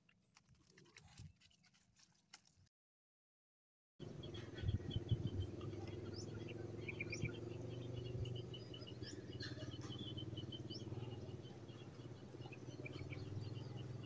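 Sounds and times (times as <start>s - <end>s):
small birds chirping: 4.0s - 14.0s.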